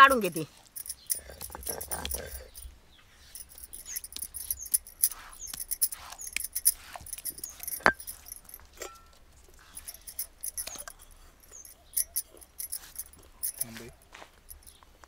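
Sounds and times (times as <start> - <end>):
metallic clinks: 0.0 - 15.0
scraping on stone slab: 3.4 - 9.0.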